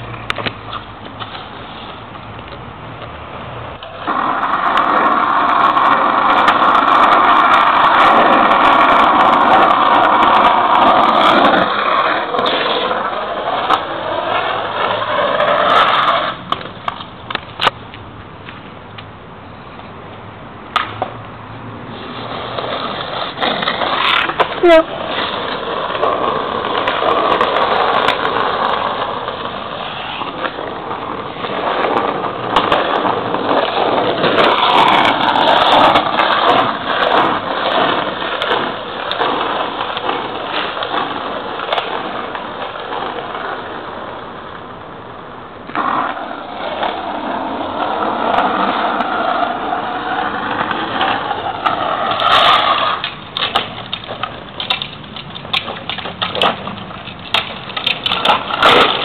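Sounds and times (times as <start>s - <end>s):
plastic wheels rolling on asphalt: 0.0s - 59.0s.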